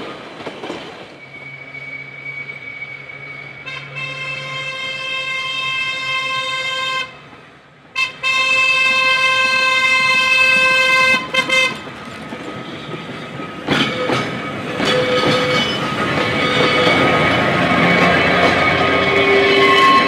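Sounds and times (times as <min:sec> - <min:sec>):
locomotive horn blasts: 0:03.6 - 0:07.2, 0:08.0 - 0:11.8
wheels clattering over rail joints: 0:11.3 - 0:20.0.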